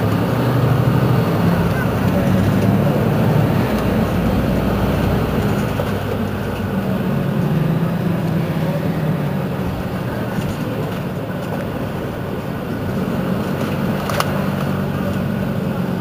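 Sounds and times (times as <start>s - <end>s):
bus engine idling: 0.0s - 16.0s.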